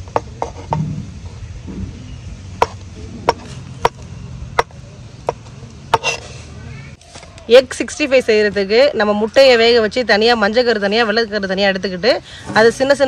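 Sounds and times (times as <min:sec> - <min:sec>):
knife chopping on wooden board: 0:05.3 - 0:06.2.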